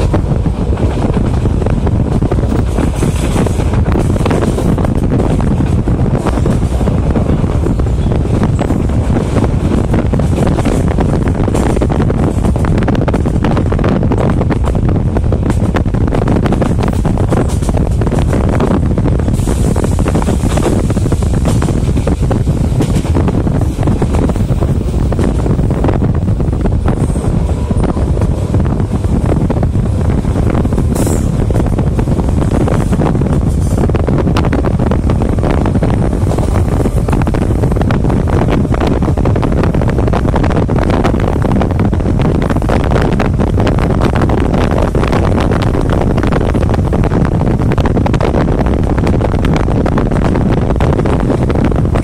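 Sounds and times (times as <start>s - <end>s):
train rumbling on rails: 0.0s - 52.0s
wind rushing at microphone: 0.0s - 52.0s.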